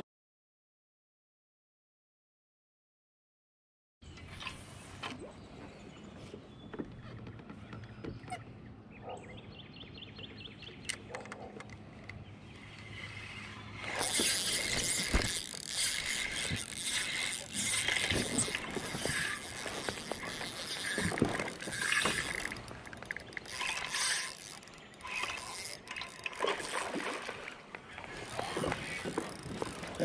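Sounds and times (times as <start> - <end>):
fishing reel gears clicking: 12.7 - 26.7, 28.1 - 30.0.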